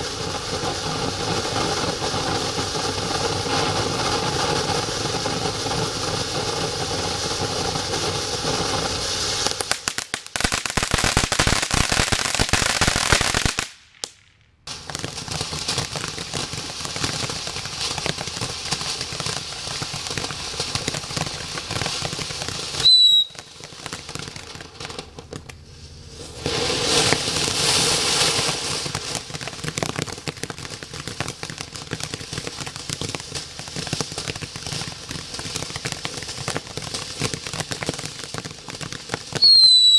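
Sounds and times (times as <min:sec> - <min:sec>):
firework fountains hissing and crackling: 0:00.0 - 0:39.9
short high whistle: 0:22.8 - 0:23.5, 0:39.4 - 0:39.9.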